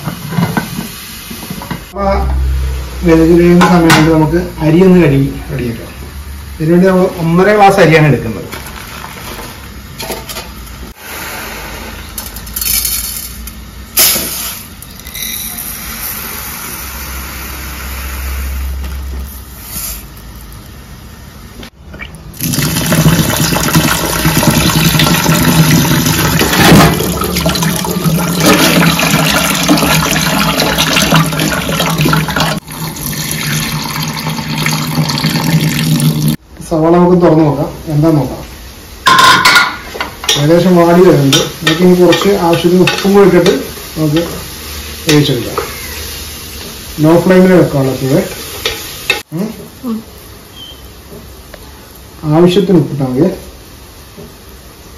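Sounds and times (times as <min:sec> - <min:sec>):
water poured into sink: 0:22.4 - 0:36.4.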